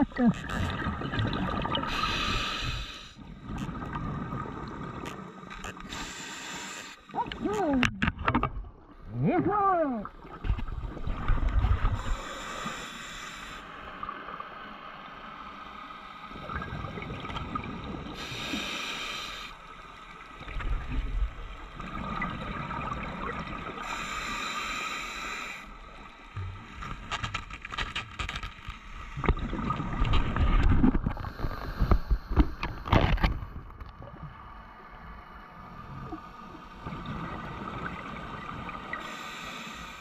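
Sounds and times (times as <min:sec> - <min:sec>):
regulator hiss: 0:01.9 - 0:03.2, 0:05.8 - 0:07.1, 0:18.2 - 0:19.6, 0:39.0 - 0:40.0.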